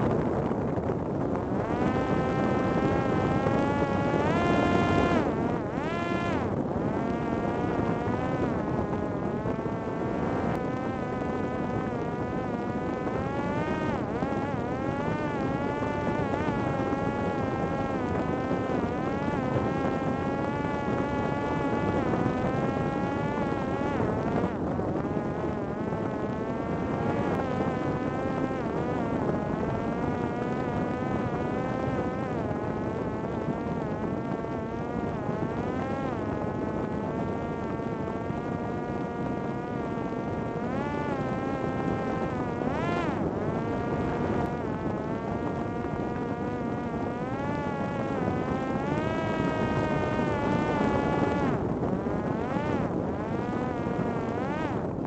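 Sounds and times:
drone propeller buzzing: 0.0 - 55.0.

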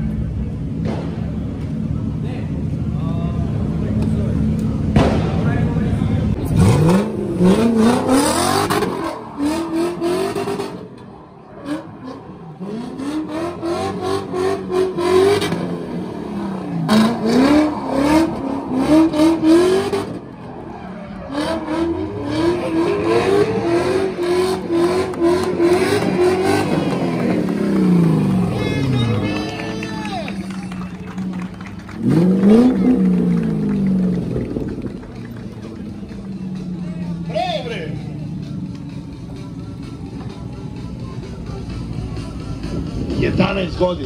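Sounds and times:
car engine revving hard: 6.4 - 10.9, 11.6 - 20.4, 21.2 - 29.2, 31.2 - 35.4.

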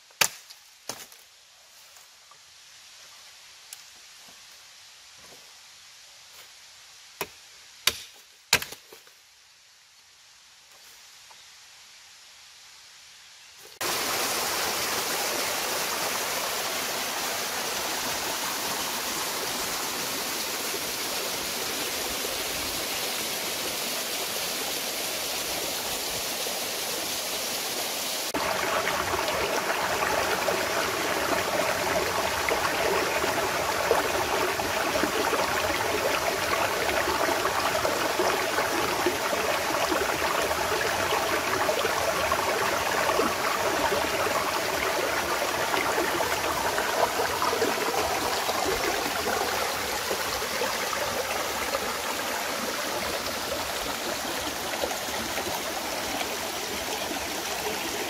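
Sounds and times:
river water rushing: 13.8 - 58.0.

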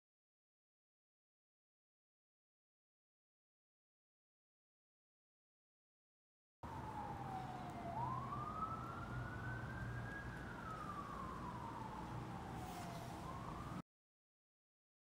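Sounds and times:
siren wailing: 6.6 - 13.8.

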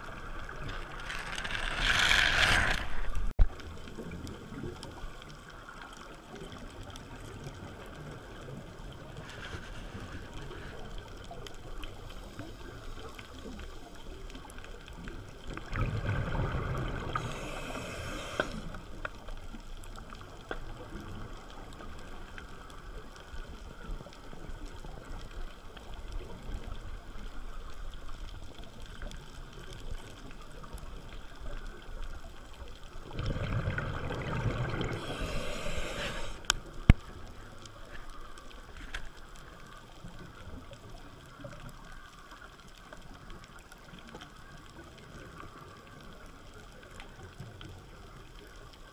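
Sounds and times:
faint water hiss: 0.0 - 48.9
diver exhaling bubbles: 15.6 - 18.7, 33.0 - 36.5.

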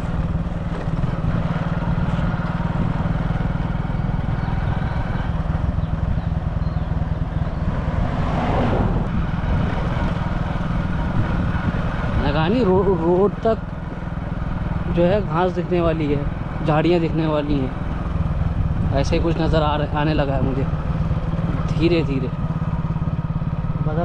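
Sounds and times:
vehicle engine running: 0.0 - 24.0
rush of noise: 7.4 - 10.2.

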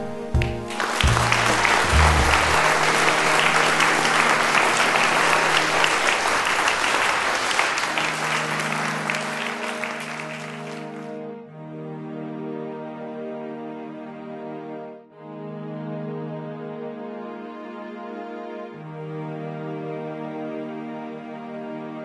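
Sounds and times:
soft background music: 0.0 - 6.3
audience applauding: 0.4 - 11.1.

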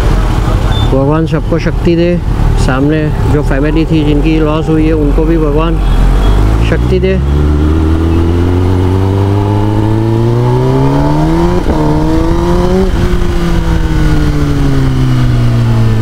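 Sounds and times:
motorcycle engine accelerating: 6.1 - 16.0.

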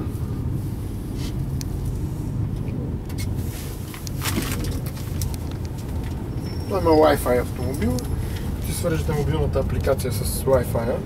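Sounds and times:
diesel engine rumbling: 0.0 - 11.0.

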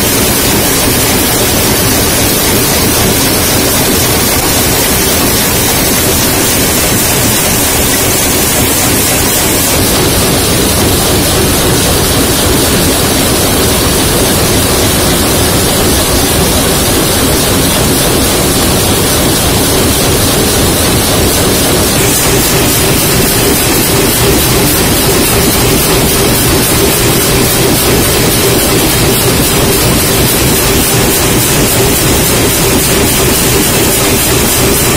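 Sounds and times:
factory machinery roar: 0.0 - 34.9.

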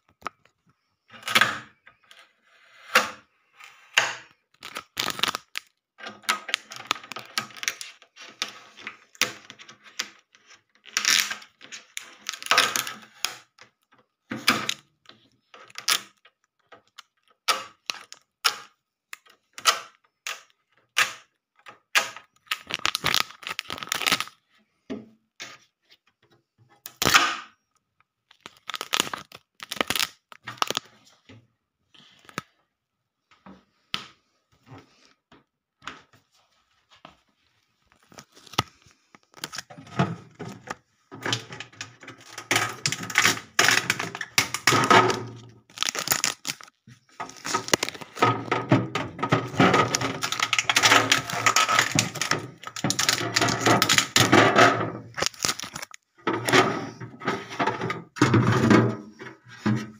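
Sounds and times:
plastic clicks and knocks: 4.0 - 24.3, 38.1 - 59.9
tape ripping: 4.6 - 5.7, 11.0 - 11.4, 22.0 - 24.3, 28.3 - 30.9, 42.2 - 48.5, 49.3 - 54.3, 55.1 - 56.0.

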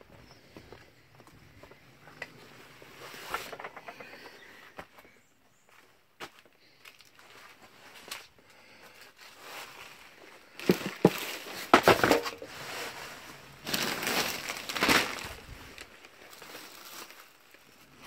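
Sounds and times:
plastic bags rustling: 6.7 - 18.0
hard objects knocking together: 10.6 - 12.5.

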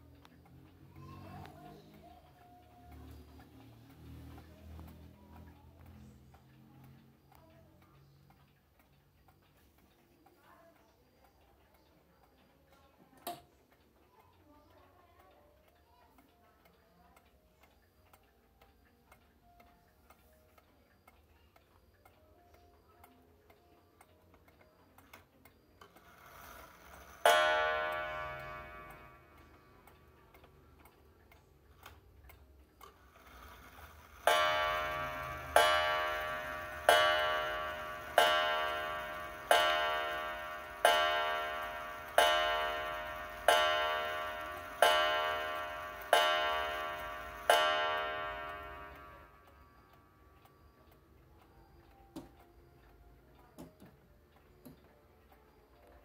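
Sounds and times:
clock ticking: 0.0 - 56.0
clock gong striking: 27.2 - 29.4, 34.2 - 49.4.

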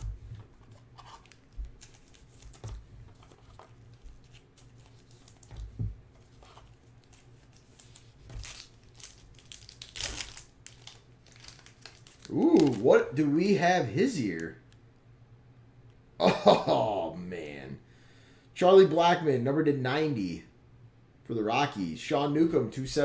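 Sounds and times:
cards and wrappers rustling: 0.0 - 12.9.

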